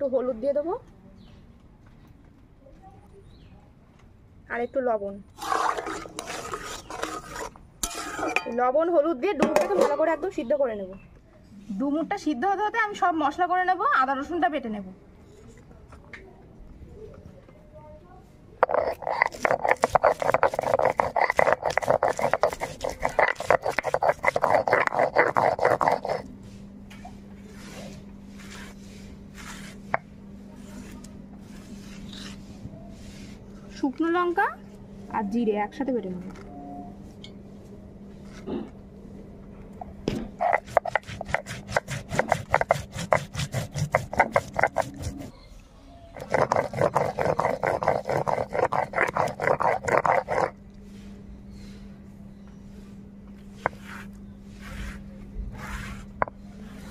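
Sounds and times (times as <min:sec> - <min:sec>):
stone rasping on stone: 0:05.4 - 0:08.3, 0:18.6 - 0:26.3, 0:27.6 - 0:30.0, 0:30.6 - 0:33.4, 0:40.4 - 0:45.3, 0:46.2 - 0:50.6, 0:53.6 - 0:56.9.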